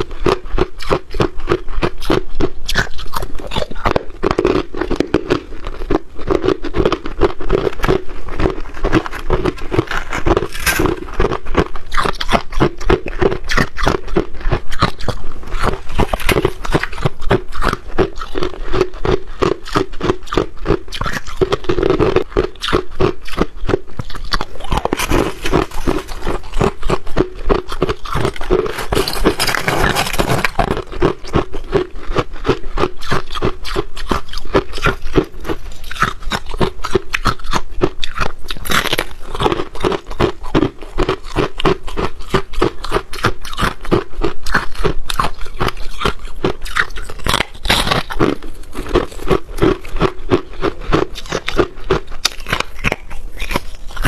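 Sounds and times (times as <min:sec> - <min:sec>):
crunching frost ice: 0:00.0 - 0:54.0
scraping crunch: 0:06.5 - 0:12.8, 0:14.7 - 0:18.5, 0:23.4 - 0:32.3.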